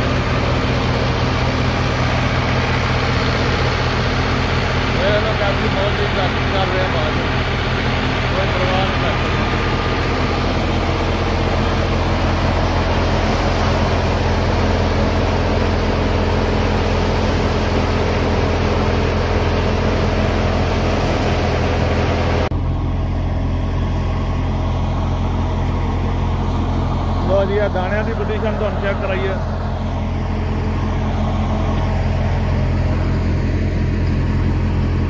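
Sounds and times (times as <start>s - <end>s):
thresher drum and blower hiss: 0.0s - 22.5s
tractor diesel engine running: 0.0s - 35.0s.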